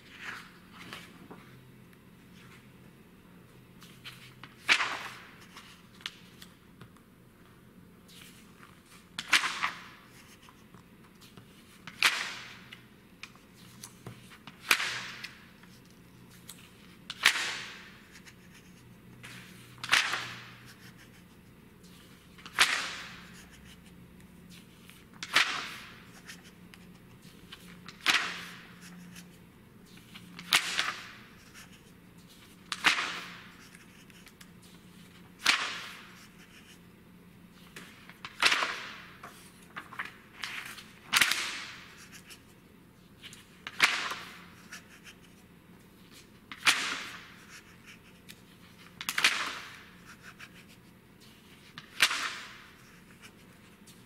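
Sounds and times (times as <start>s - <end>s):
magazine pages turning: 37.6s - 42.5s.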